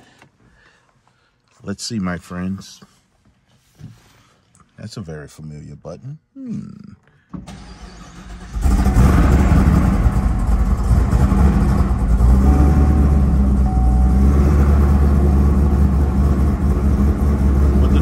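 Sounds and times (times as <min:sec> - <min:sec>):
engine cranking: 0:07.5 - 0:12.4
car engine loud idle: 0:08.5 - 0:18.0.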